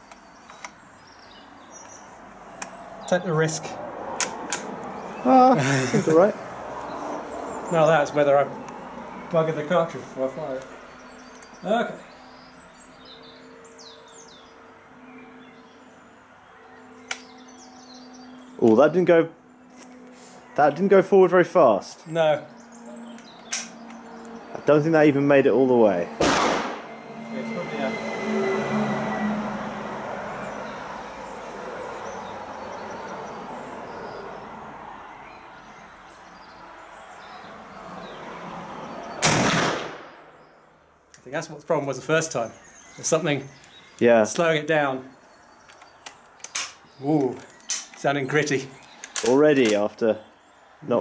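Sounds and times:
bird chirps: 0.0s - 3.4s, 6.8s - 20.9s, 21.9s - 25.3s, 40.3s - 51.0s
downward-sweeping bird calls: 0.0s - 3.8s, 4.9s - 26.2s, 40.1s - 51.0s
rifle shot: 26.2s - 26.9s, 39.2s - 40.3s.

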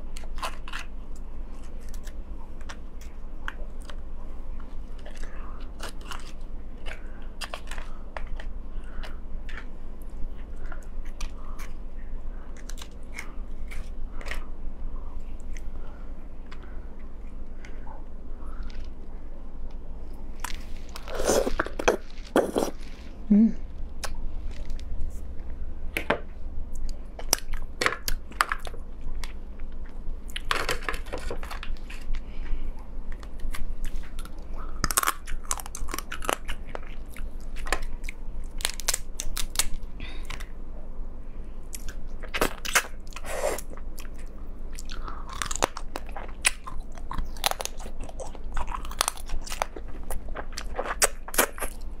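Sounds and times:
crab shell cracking and crunching: 0.0s - 4.1s, 4.9s - 11.8s, 12.5s - 14.5s, 26.8s - 32.3s, 33.1s - 40.5s, 41.7s - 52.0s.

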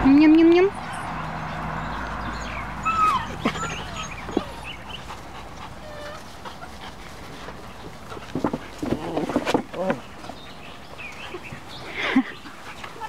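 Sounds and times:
puppies whimpering and yipping: 2.2s - 7.8s.

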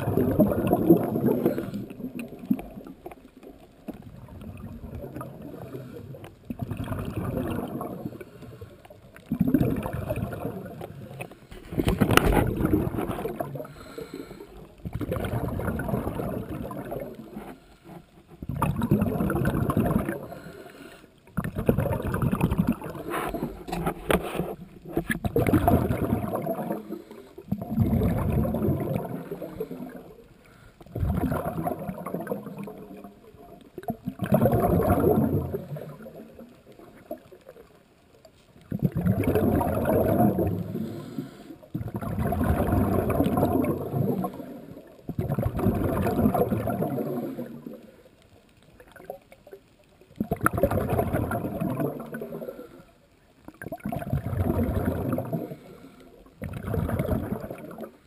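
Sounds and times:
bubbling exhaled air: 0.0s - 17.6s, 18.4s - 37.2s, 38.6s - 48.0s, 50.2s - 52.9s, 53.5s - 58.0s
diver breathing through regulator: 13.6s - 14.6s, 20.2s - 21.2s, 22.9s - 24.6s, 40.6s - 41.6s, 55.4s - 56.2s.

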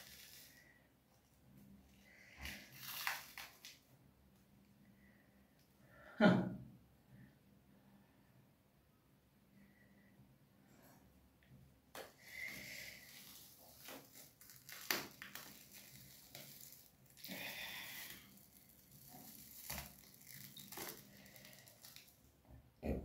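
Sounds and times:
face mask peeling off skin: 0.0s - 0.8s, 2.1s - 3.8s, 11.9s - 22.2s.

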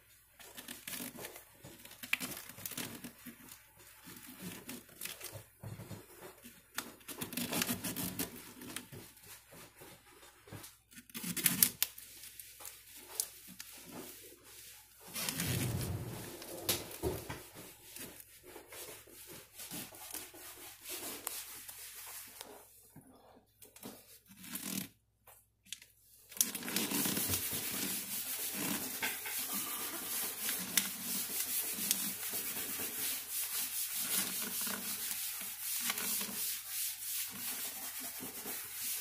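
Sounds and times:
vinyl paper crinkling and rustling: 0.3s - 22.7s.

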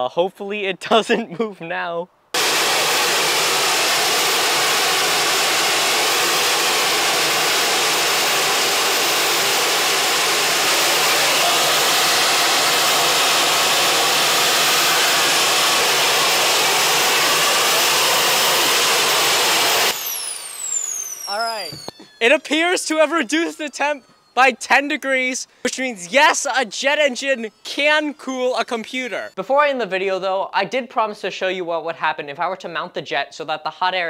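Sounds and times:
high turbine whine: 2.4s - 29.4s
turbojet engine rush of air: 2.4s - 29.4s.

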